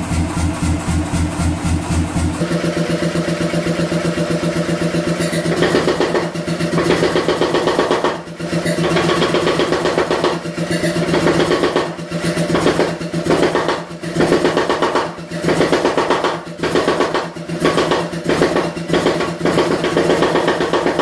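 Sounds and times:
steady machine hum: 0:00.0 - 0:07.1
power hammer striking steel: 0:04.9 - 0:21.0.

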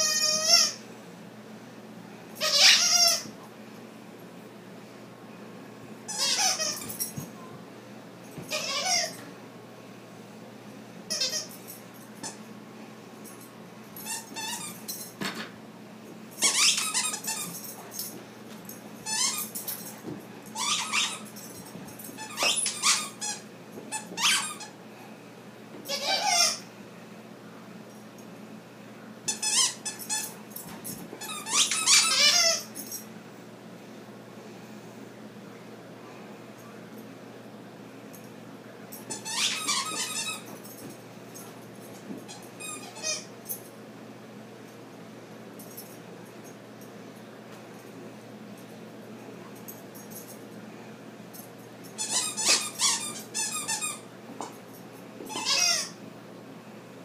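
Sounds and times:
squeaky dog toy squeaking: 0:00.0 - 0:00.8, 0:02.4 - 0:03.3, 0:06.1 - 0:07.0, 0:08.5 - 0:09.2, 0:11.1 - 0:11.6, 0:14.0 - 0:14.8, 0:16.4 - 0:17.5, 0:20.6 - 0:21.3, 0:22.2 - 0:24.7, 0:25.9 - 0:26.6, 0:29.3 - 0:30.3, 0:31.2 - 0:32.7, 0:39.1 - 0:40.5, 0:42.3 - 0:43.3, 0:52.0 - 0:54.0, 0:55.3 - 0:56.0.

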